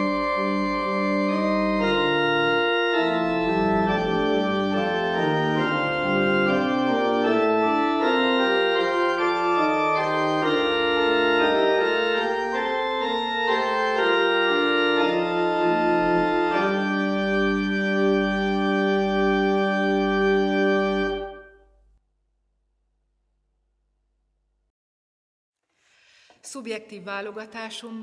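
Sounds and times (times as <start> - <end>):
pipe organ chords: 0.0 - 21.9.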